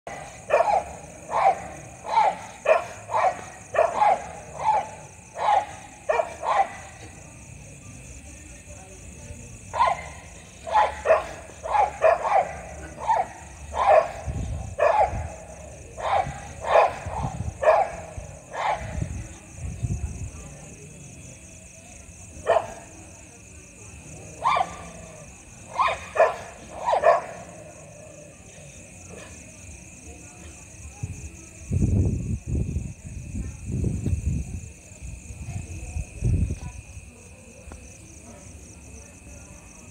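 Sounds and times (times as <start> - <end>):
dogs barking: 0.1 - 7.1, 9.7 - 19.1, 22.4 - 22.9, 24.3 - 28.0.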